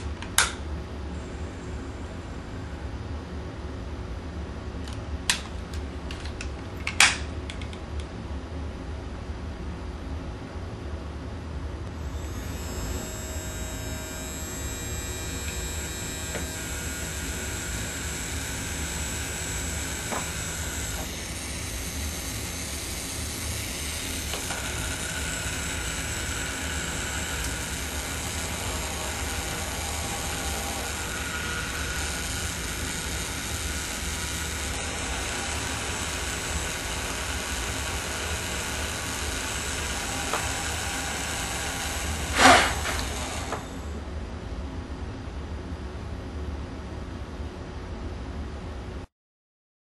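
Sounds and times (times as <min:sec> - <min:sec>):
small motor whirring: 0:12.0 - 0:44.0.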